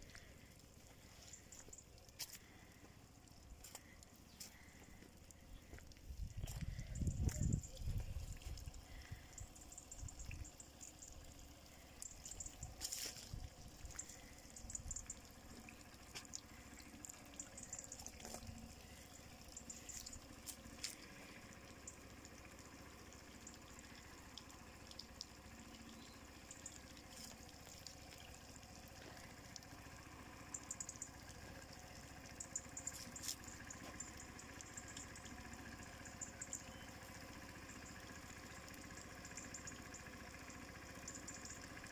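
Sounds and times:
small crackles and ticks: 0:00.0 - 0:41.9
water trickling and dripping: 0:00.0 - 0:41.9.

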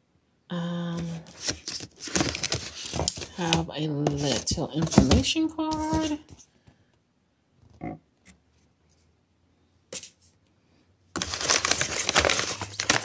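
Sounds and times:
plastic pouch crinkling: 0:11.2 - 0:13.0.

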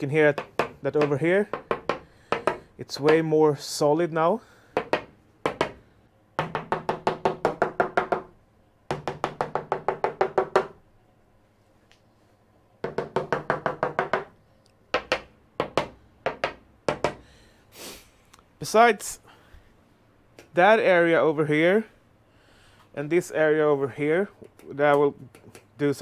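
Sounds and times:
tool handle tapping fiberglass roof: 0:00.3 - 0:03.3, 0:08.9 - 0:10.8, 0:12.8 - 0:14.3.

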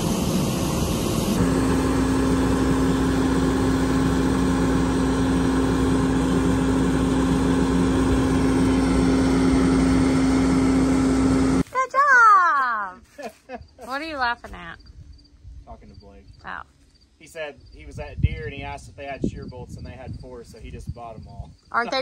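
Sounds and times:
combine harvester running: 0:00.0 - 0:11.7
auger unloading corn: 0:00.0 - 0:11.9.

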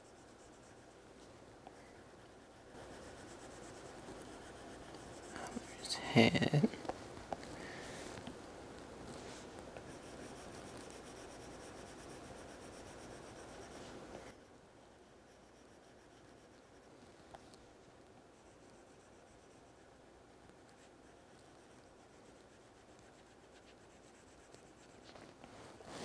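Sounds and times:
stylus scratching on glass screen: 0:02.0 - 0:06.4, 0:09.8 - 0:14.0, 0:18.3 - 0:19.8, 0:20.6 - 0:25.2.

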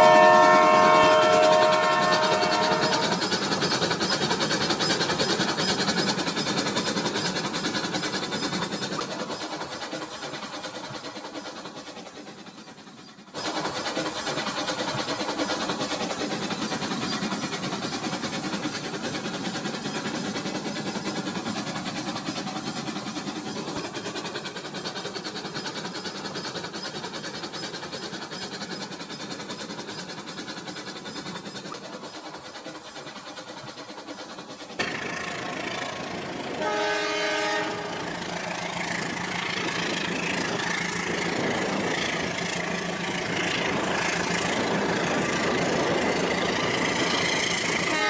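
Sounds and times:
toy train motor and wheel rattle: 0:00.0 - 0:48.0.

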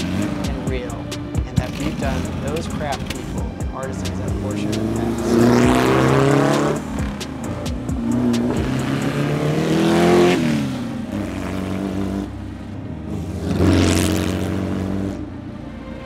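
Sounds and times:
sports car driving past at speed: 0:13.1 - 0:15.3.

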